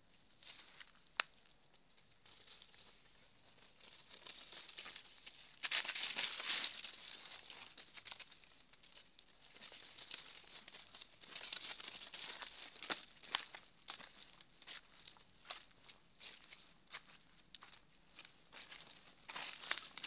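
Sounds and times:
dry leaves crunching underfoot: 0:03.8 - 0:08.2, 0:09.5 - 0:14.8, 0:17.6 - 0:20.0.

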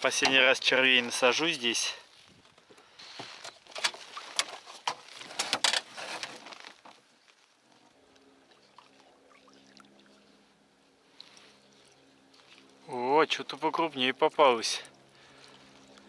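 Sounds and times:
fishing tackle clicks and rustling: 0:02.0 - 0:08.3.

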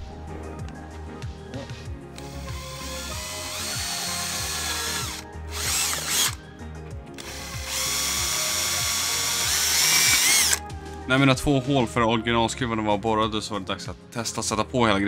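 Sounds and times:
background music: 0:00.0 - 0:15.0
power drill boring into plastic: 0:02.2 - 0:06.4, 0:07.2 - 0:10.6.

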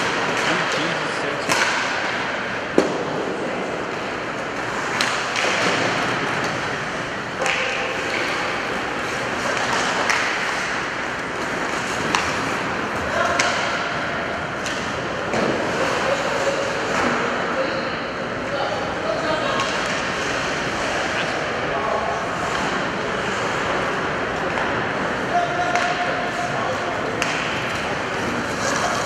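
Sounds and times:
hockey sticks clacking on puck: 0:00.0 - 0:03.0, 0:03.9 - 0:06.8, 0:07.4 - 0:17.3, 0:19.6 - 0:21.4, 0:25.6 - 0:29.0
skates carving ice: 0:00.0 - 0:17.4, 0:19.6 - 0:21.5, 0:22.1 - 0:29.0.

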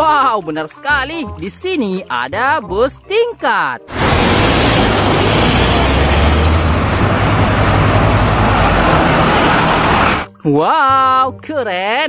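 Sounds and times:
bus engine hum: 0:03.9 - 0:10.3
road and traffic noise: 0:03.9 - 0:10.3.

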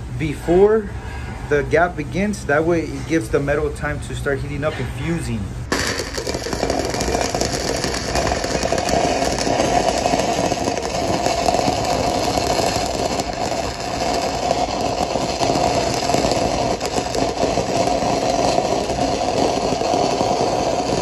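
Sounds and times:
welding arc crackling: 0:05.7 - 0:21.0.

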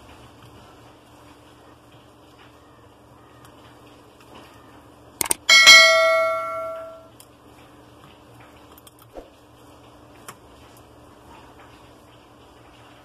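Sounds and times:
bell chime: 0:05.4 - 0:07.0.

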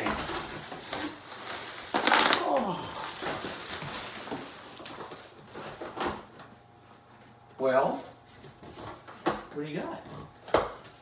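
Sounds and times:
bubble wrap crinkling: 0:00.0 - 0:05.9.

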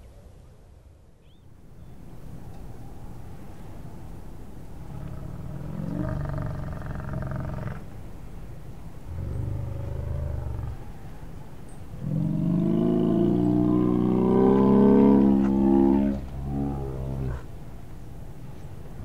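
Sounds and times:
bear growling and roaring: 0:04.9 - 0:07.8, 0:09.1 - 0:10.8, 0:12.0 - 0:17.5.

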